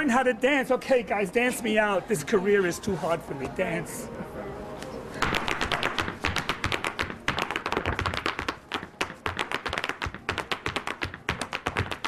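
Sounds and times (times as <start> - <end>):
hard shoes tapping on floor: 5.2 - 12.0.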